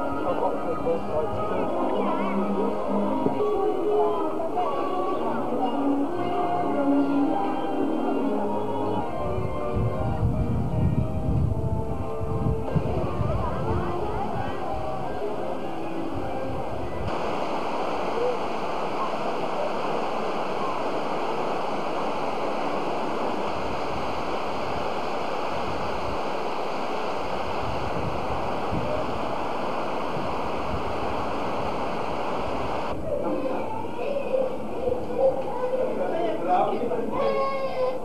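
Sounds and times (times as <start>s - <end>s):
rush of falling water: 17.0s - 33.0s.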